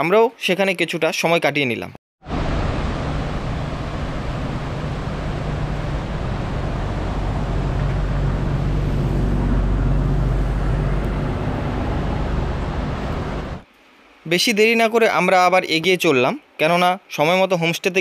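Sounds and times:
road noise rushing: 0:02.2 - 0:13.7
low engine hum: 0:02.3 - 0:13.7.

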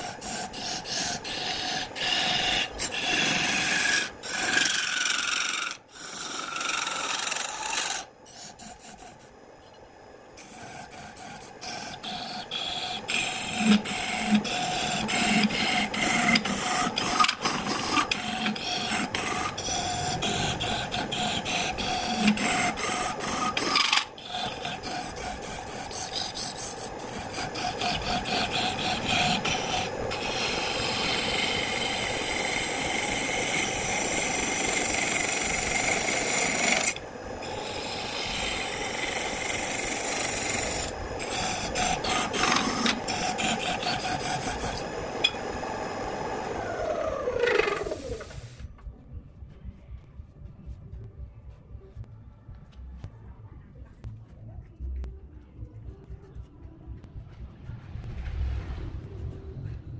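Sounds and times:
gouge scraping spinning wood: 0:00.0 - 0:09.3, 0:10.4 - 0:48.6
lathe motor hum: 0:00.0 - 0:09.4, 0:10.4 - 0:48.6.

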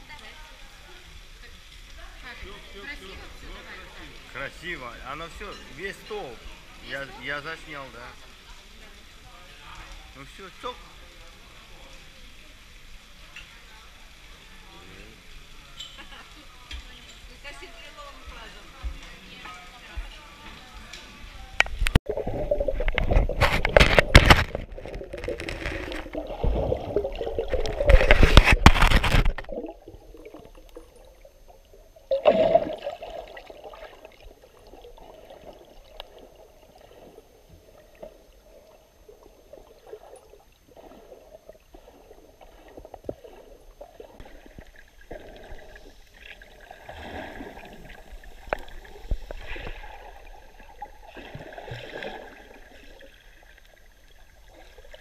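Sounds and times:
underwater water sloshing: 0:18.1 - 0:55.0.

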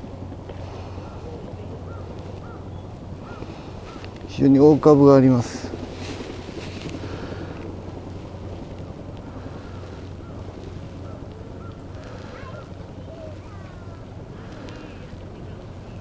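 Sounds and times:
wind rumble on microphone: 0:00.0 - 0:16.0
faint bird calls: 0:00.5 - 0:04.4, 0:09.2 - 0:16.0.

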